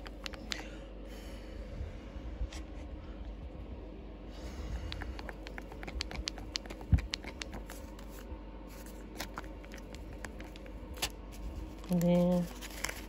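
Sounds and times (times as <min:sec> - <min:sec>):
parchment paper rustling and crackling: 0:05.4 - 0:13.0.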